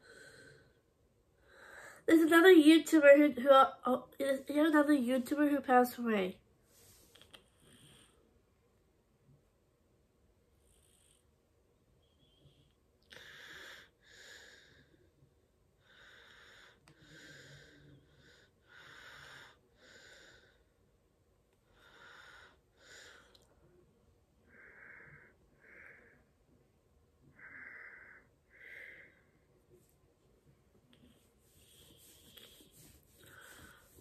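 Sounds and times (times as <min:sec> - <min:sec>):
person breathing wheezily: 0:31.4 - 0:34.0.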